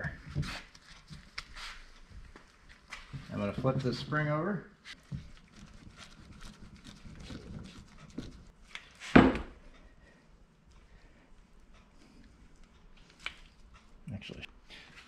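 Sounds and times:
scuffs and clicks of handling: 0:00.0 - 0:03.8.

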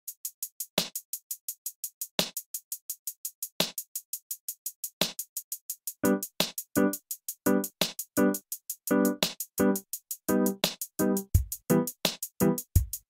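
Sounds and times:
light ticking beat: 0:00.0 - 0:13.0
pitched chords: 0:06.0 - 0:12.6
heavy beat hits: 0:10.3 - 0:13.0.

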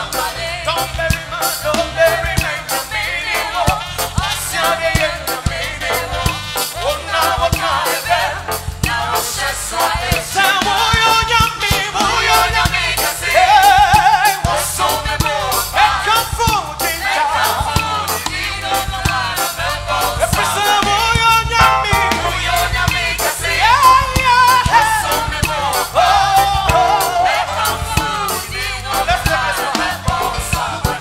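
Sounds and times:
singers on microphones: 0:00.0 - 0:31.0
electronic keyboard: 0:16.8 - 0:31.0.

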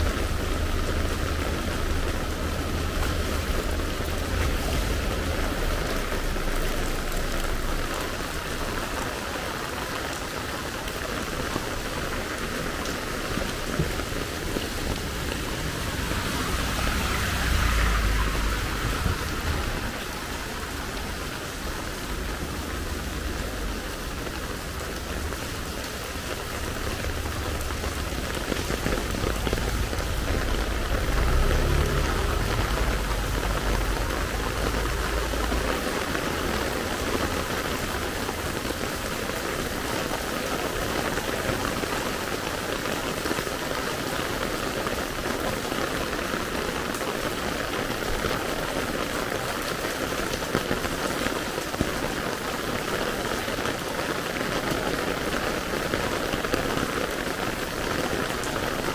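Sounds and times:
heavy rain on wet pavement: 0:00.0 - 0:58.9.

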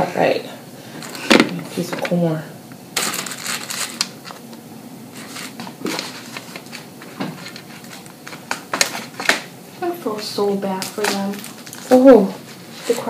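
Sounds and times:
clicks and rustles of shells: 0:03.0 - 0:04.4.

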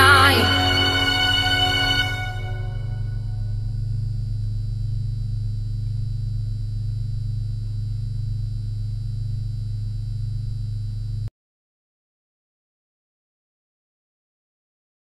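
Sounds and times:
faint high tone: 0:00.0 - 0:03.3
low electronic drone: 0:00.0 - 0:07.9.

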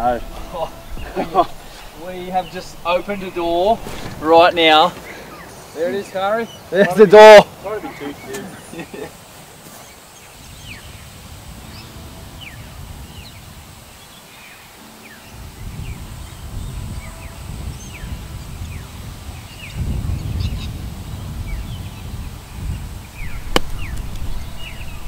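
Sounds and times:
wind rumble on microphone: 0:00.0 - 0:05.6, 0:10.2 - 0:14.3, 0:15.2 - 0:25.0
birds chirping: 0:00.0 - 0:25.0.

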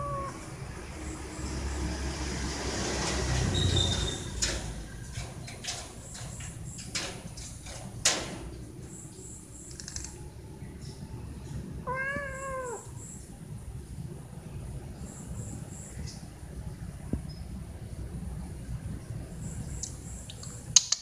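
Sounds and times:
cat meowing: 0:00.0 - 0:00.5, 0:11.8 - 0:13.0.

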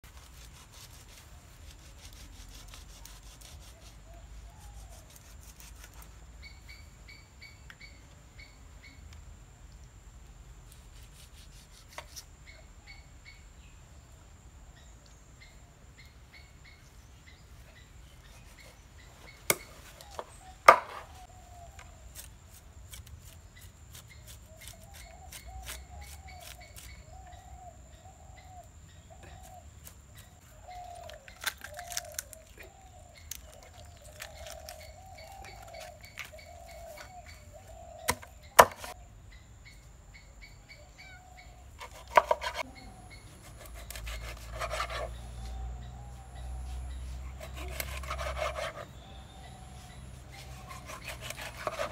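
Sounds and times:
knife scraping fish: 0:41.8 - 0:42.6, 0:43.5 - 0:45.2, 0:47.4 - 0:48.9, 0:50.4 - 0:51.9.

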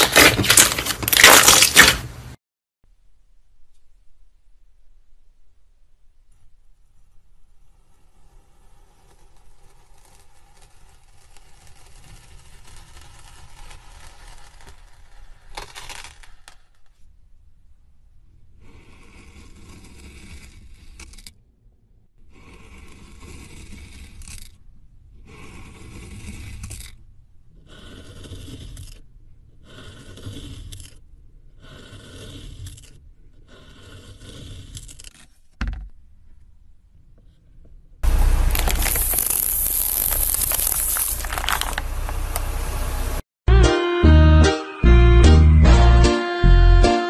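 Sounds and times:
knife scraping through sand: 0:29.6 - 0:31.0, 0:31.6 - 0:35.4.

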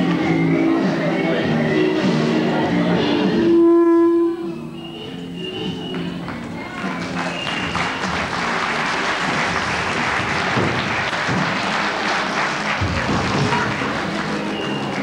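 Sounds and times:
music playing: 0:00.0 - 0:15.0
audience applauding: 0:06.3 - 0:15.0.

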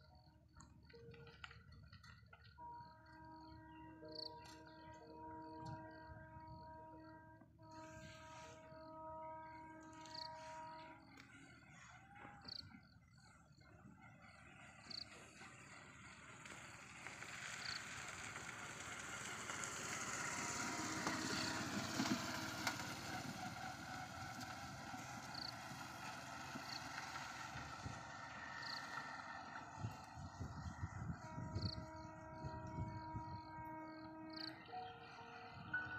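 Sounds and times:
vehicle passing: 0:16.4 - 0:33.2.

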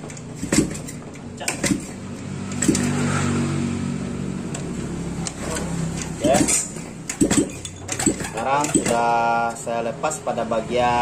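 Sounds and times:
metallic clicks and knocks: 0:04.5 - 0:09.6.

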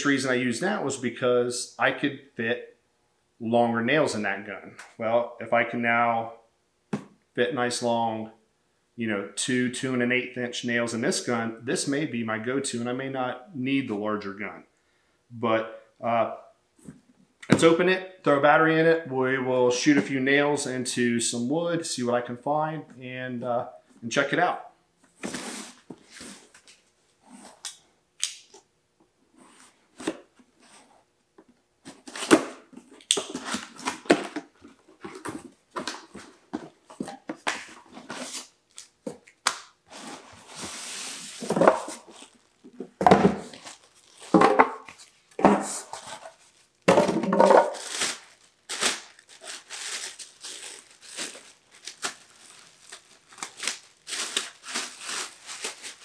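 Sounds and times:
cardboard and paper rustling: 0:31.8 - 0:38.5, 0:39.9 - 0:56.0
plastic bag crinkling: 0:43.4 - 0:44.4, 0:45.0 - 0:56.0.

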